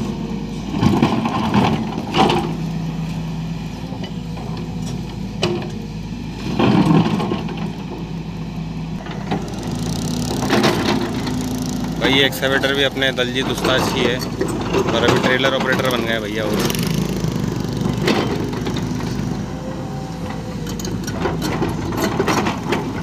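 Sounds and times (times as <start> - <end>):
excavator diesel engine running: 0.0 - 23.0
loud grinding: 9.0 - 23.0.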